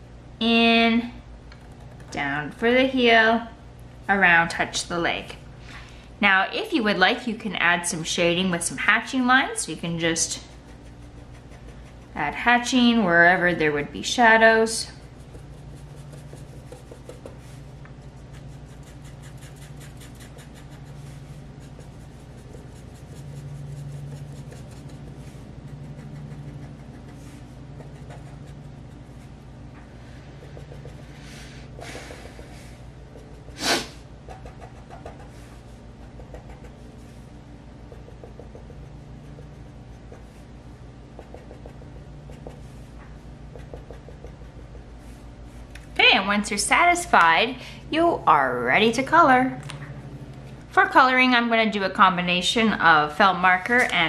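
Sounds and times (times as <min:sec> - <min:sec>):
low steady hum: 0:00.0 - 0:54.0
marker scratching on paper: 0:10.0 - 0:12.8, 0:15.0 - 0:29.5, 0:30.2 - 0:37.2, 0:37.9 - 0:40.4, 0:41.2 - 0:42.9, 0:43.5 - 0:45.2.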